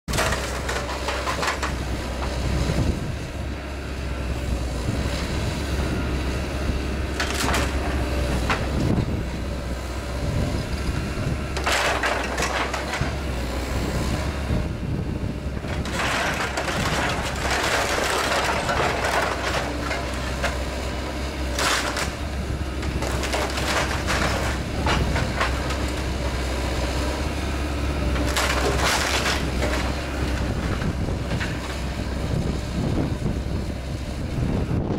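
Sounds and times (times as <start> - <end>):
excavator running: 0.1 - 34.9
timber splintering and crunching: 15.6 - 27.1, 28.0 - 32.1.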